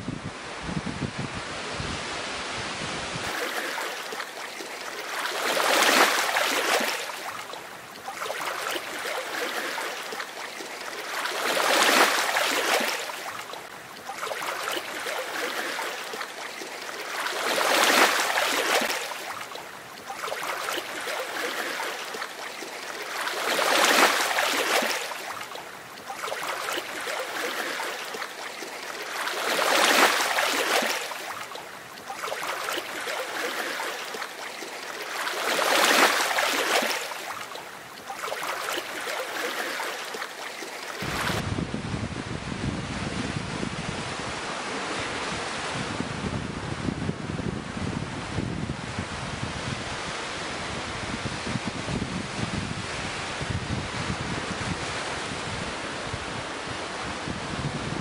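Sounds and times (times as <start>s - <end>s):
ocean waves breaking: 1.5s - 41.6s.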